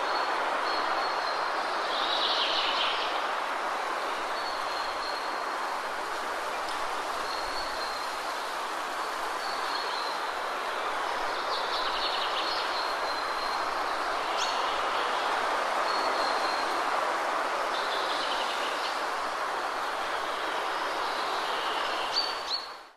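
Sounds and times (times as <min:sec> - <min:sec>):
rushing wind: 0:00.0 - 0:22.9.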